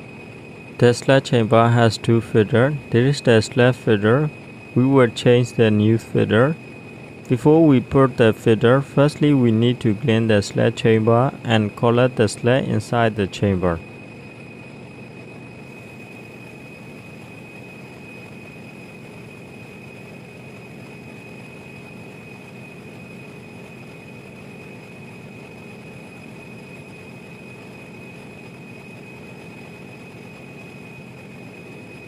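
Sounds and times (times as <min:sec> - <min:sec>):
generator engine drone: 0:00.0 - 0:32.0
high-pitched whine: 0:00.0 - 0:32.0.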